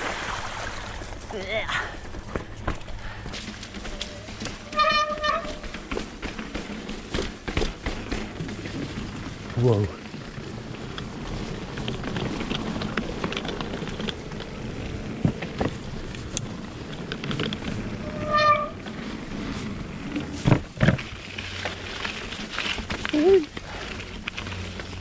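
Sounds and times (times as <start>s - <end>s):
bike tyres on rough trail: 0.0s - 25.0s
bike clicks and knocks: 2.0s - 9.6s, 10.8s - 25.0s
high squeak: 18.0s - 18.8s.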